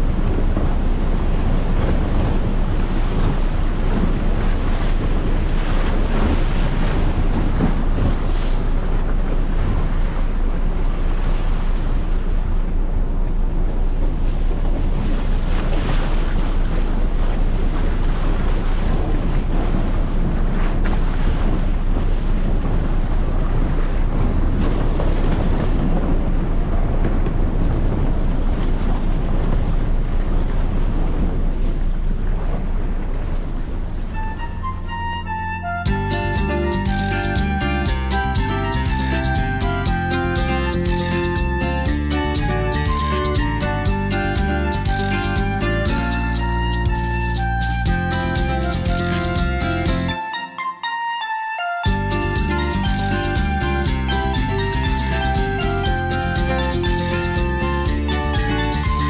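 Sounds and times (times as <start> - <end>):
wind buffeting microphone: 0.0 - 50.0
low rumble of ship: 0.0 - 59.0
rushing sea water: 0.0 - 59.0.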